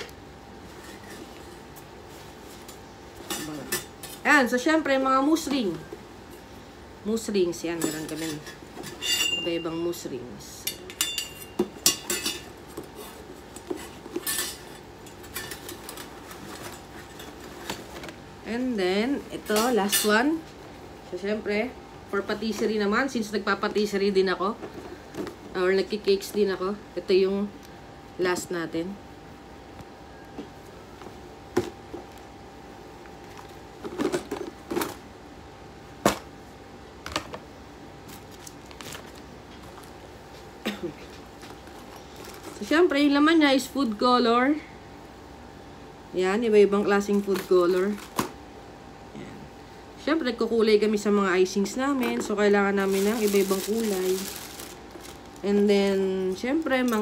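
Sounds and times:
metal rings clinking: 0:09.0 - 0:09.8
small bottles being handled: 0:52.8 - 0:55.5.

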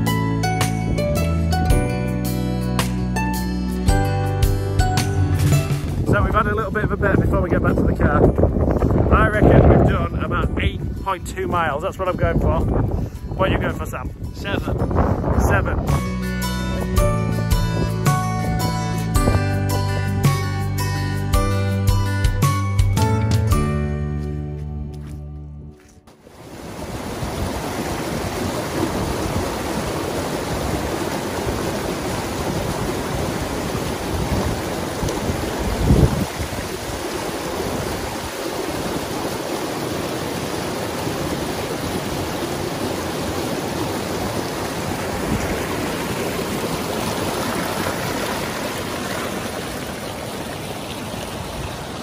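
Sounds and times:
stream rushing over rocks: 0:26.1 - 0:52.0.

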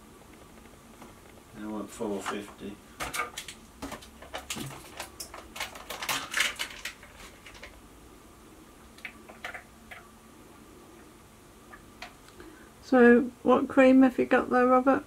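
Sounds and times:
plastic pot clicking and crackling: 0:02.2 - 0:07.8, 0:09.0 - 0:10.1.

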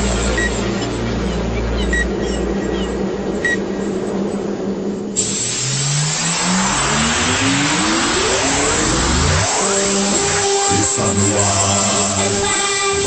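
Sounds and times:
low steady hum: 0:00.0 - 0:05.2
sudden rush of noise: 0:00.0 - 0:13.0
revving sound rising in pitch: 0:05.5 - 0:12.4.

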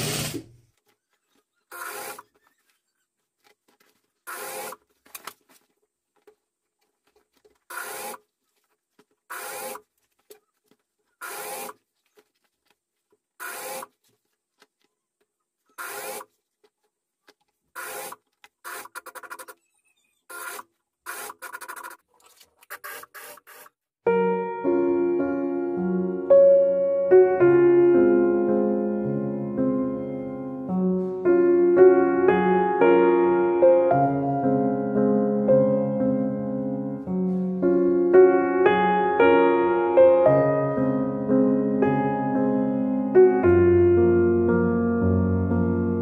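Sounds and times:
sewing machine stitching: 0:00.0 - 0:00.6, 0:01.3 - 0:02.8, 0:04.2 - 0:04.9, 0:07.6 - 0:08.3, 0:09.3 - 0:09.9, 0:11.1 - 0:11.9, 0:13.4 - 0:14.0, 0:15.7 - 0:16.3, 0:17.7 - 0:23.8.

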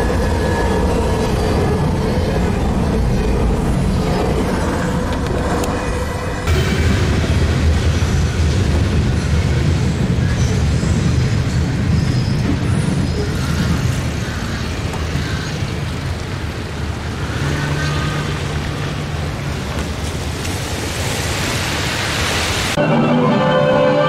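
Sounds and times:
traffic on wet pavement: 0:06.5 - 0:22.8.

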